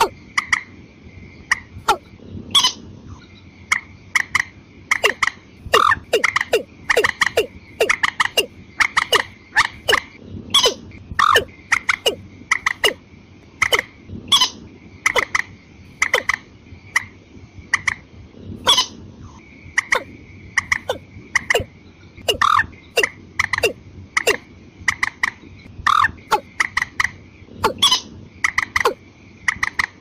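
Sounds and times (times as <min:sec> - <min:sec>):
birds calling sharp notes: 0:04.9 - 0:13.0, 0:19.6 - 0:24.4, 0:27.6 - 0:29.7.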